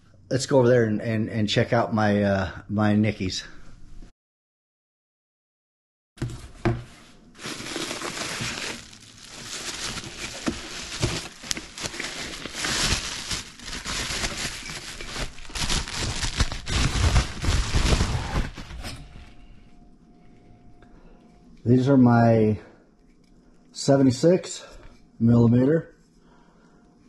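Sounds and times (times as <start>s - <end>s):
heavy thumps of parts and box: 6.2s - 8.9s, 9.5s - 19.3s
bubble wrap crinkling: 7.3s - 18.8s.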